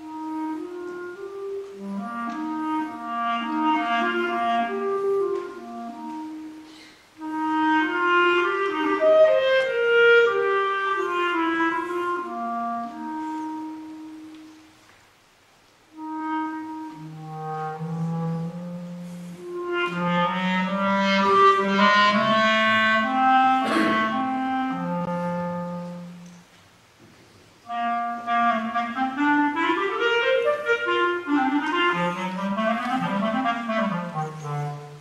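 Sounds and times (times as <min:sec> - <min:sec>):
clarinet melody: 0:00.0 - 0:15.0, 0:15.8 - 0:26.6, 0:27.6 - 0:35.0.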